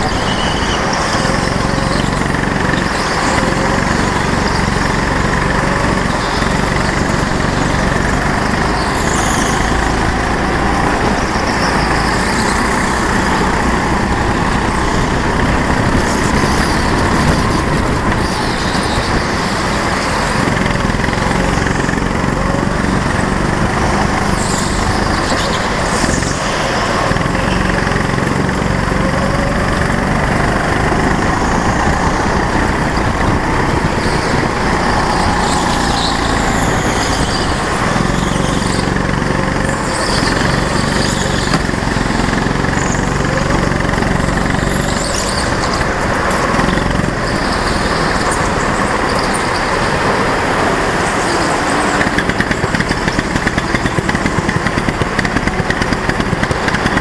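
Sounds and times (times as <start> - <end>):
go-kart engine running: 0.0 - 57.0.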